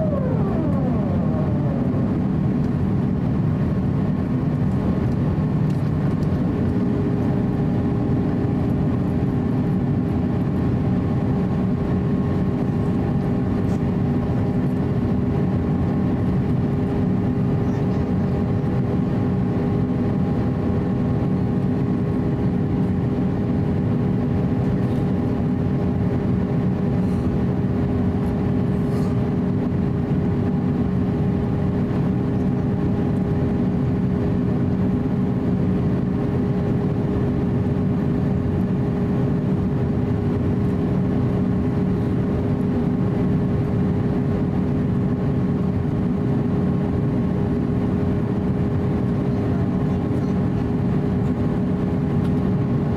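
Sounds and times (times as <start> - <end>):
jet engines droning: 0.0 - 52.9
steady humming tones: 0.0 - 52.9
rush of airflow: 28.7 - 29.4.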